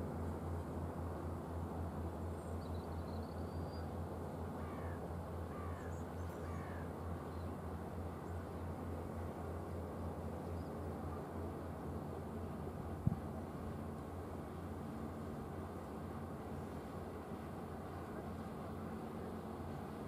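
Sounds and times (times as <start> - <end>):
bird calls: 4.6 - 7.5.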